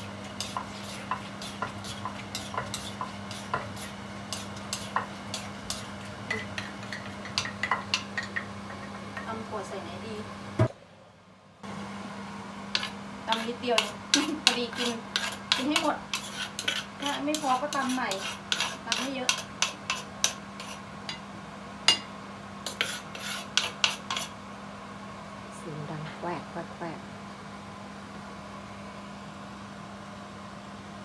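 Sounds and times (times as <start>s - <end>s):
spoon scraping a mortar: 0.0s - 9.3s, 12.8s - 20.8s, 22.6s - 24.4s
steady low hum: 0.0s - 31.0s.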